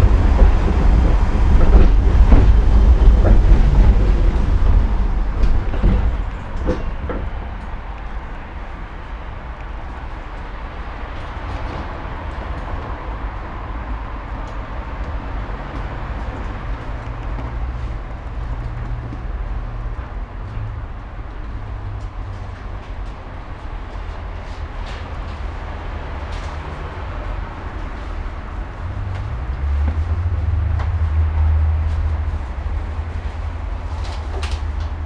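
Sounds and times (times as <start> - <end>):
tram wheels rumbling on rails: 0.0 - 35.0.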